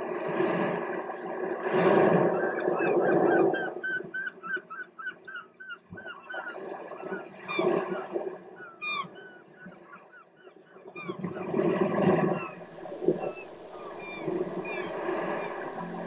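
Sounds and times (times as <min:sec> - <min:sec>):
sweeping downward bird call: 0:12.3 - 0:16.0.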